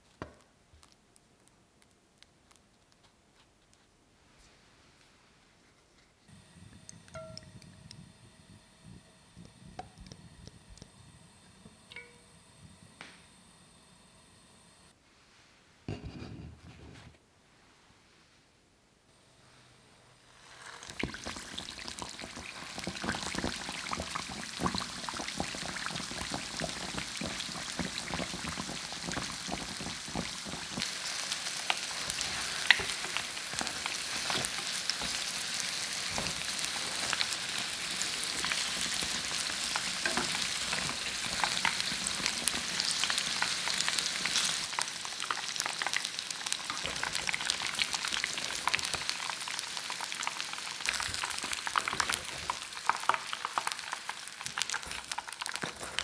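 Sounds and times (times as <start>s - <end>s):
oil bubbling and crackling: 20.3s - 56.0s.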